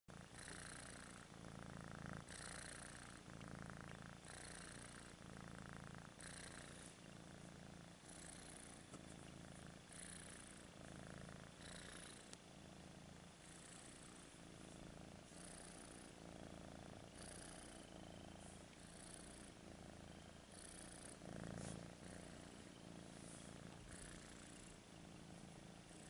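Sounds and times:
kitten purring: 0.1s - 26.0s.

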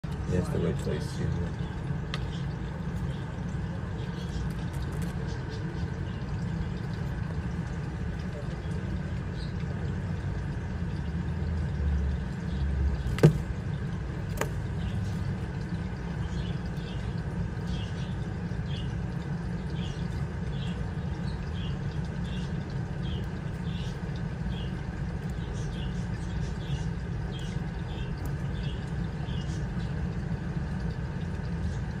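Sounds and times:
steady low hum: 0.0s - 32.0s.

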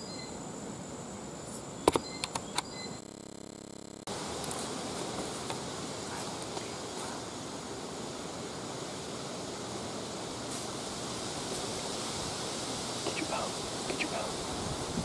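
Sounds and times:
wind rushing through leaves: 4.1s - 15.0s.

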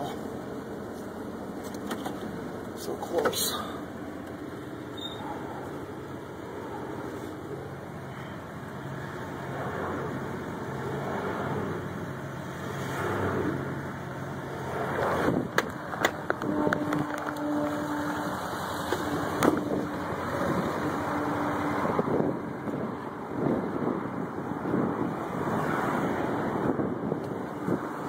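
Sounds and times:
truck engine and tyre noise: 0.0s - 28.0s.

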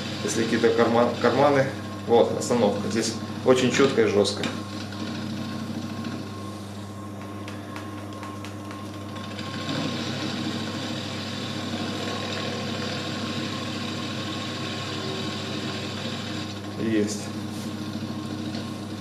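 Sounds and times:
mill motor and spindle hum: 0.0s - 19.0s
end mill cutting aluminium: 9.1s - 17.0s.

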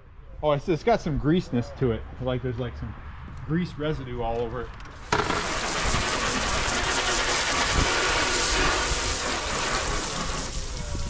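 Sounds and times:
pressure washer spraying water: 5.0s - 11.0s.

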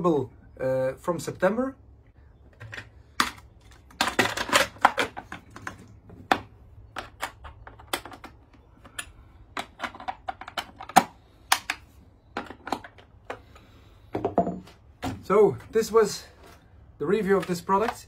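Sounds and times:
plastic and metal clicks and knocks: 2.5s - 13.5s.

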